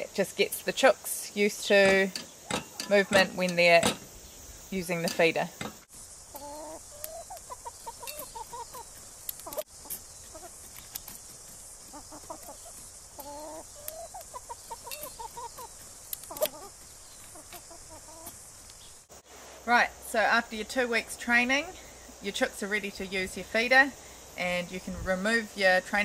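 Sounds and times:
hens clucking: 0:04.8 - 0:11.2, 0:11.8 - 0:18.4.

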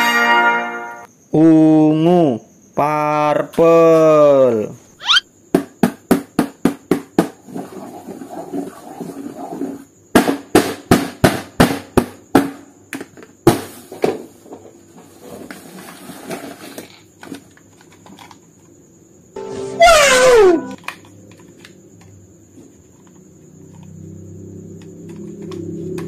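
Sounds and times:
sharp knocks on a hard surface: 0:05.5 - 0:07.4, 0:10.1 - 0:12.6.

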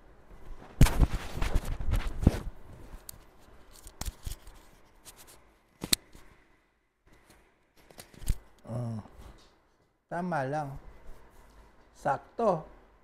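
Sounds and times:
microphone rubbing on shirt fabric: 0:00.4 - 0:03.0.

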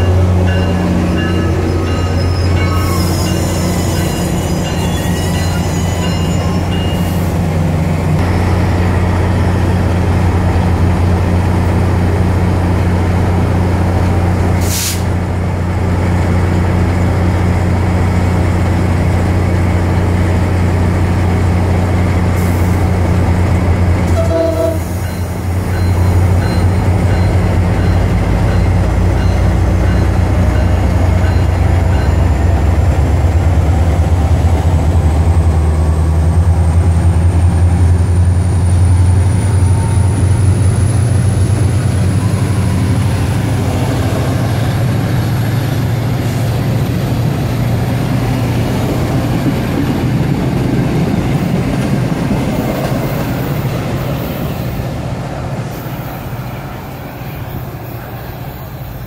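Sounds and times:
diesel locomotive droning: 0:00.0 - 0:59.0
air hiss: 0:14.6 - 0:15.1.

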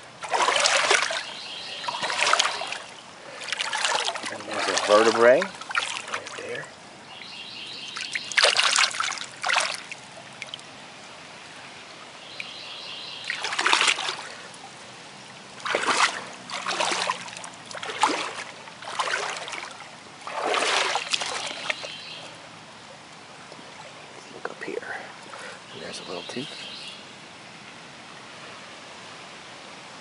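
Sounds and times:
splashing in creek water: 0:00.0 - 0:29.4
stream trickling: 0:00.0 - 0:30.0.

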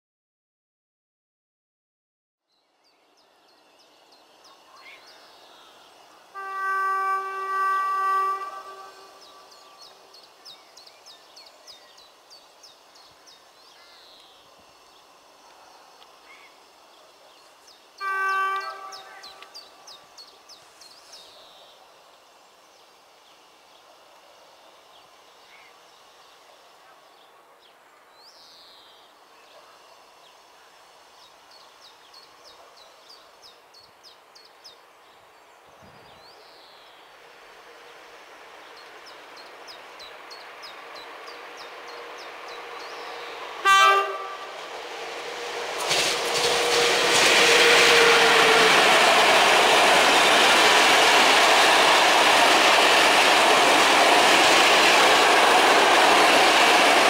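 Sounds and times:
approaching train: 0:02.6 - 0:57.0
train horn blast: 0:06.3 - 0:09.7, 0:18.0 - 0:19.6, 0:42.0 - 0:52.4
small birds chirping: 0:31.2 - 0:43.6.

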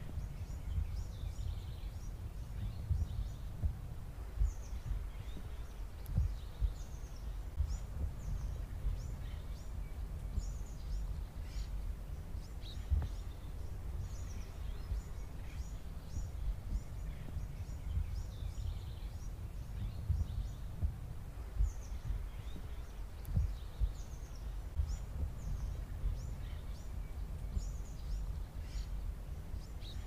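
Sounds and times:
small birds chirping: 0:00.0 - 0:30.0
low rumble: 0:12.8 - 0:29.6.

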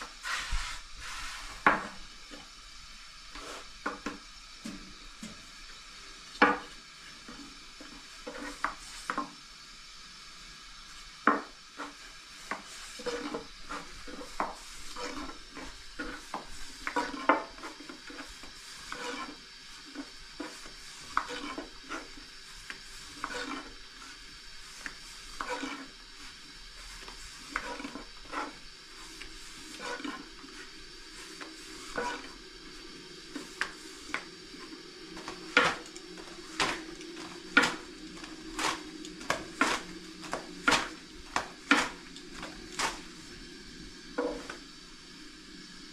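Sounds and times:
rolling pin rolling dough: 0:11.2 - 0:32.5, 0:33.2 - 0:43.1.

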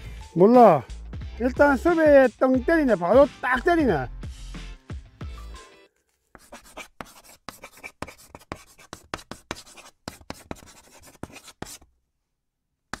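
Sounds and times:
chalk scratching on chalkboard: 0:06.3 - 0:11.9.

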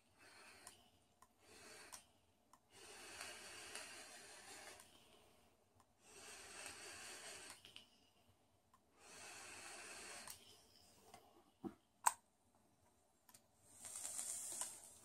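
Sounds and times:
faint breathy vapour hisses: 0:00.0 - 0:11.2, 0:13.6 - 0:15.0.

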